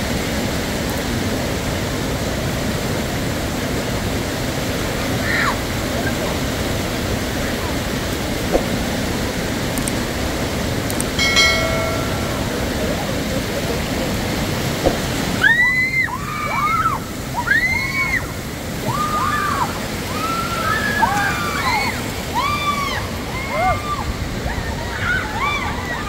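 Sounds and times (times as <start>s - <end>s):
stream rushing over rocks: 0.0s - 26.0s
people crying and screaming: 15.4s - 26.0s.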